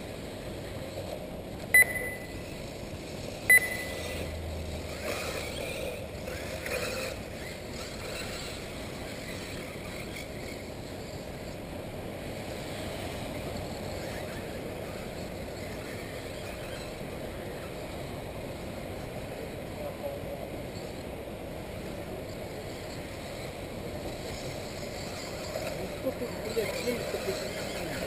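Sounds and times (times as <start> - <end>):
brief chirps: 1.8 - 2.4, 3.5 - 4.2
rc car motors whirring: 2.3 - 17.9, 21.8 - 28.0.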